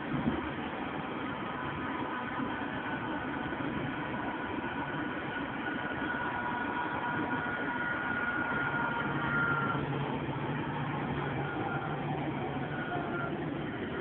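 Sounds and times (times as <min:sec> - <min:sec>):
low hum: 0:00.0 - 0:14.0
tram rolling noise: 0:00.0 - 0:14.0
thin electric whine: 0:00.2 - 0:14.0.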